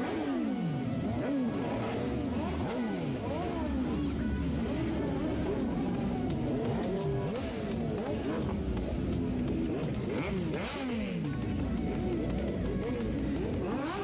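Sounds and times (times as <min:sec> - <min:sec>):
motorcycle engines revving: 0:00.0 - 0:14.0.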